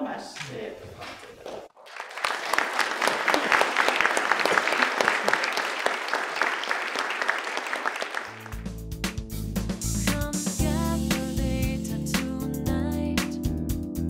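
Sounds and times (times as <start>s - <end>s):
audience applauding: 1.8s - 8.7s
music: 8.3s - 14.0s.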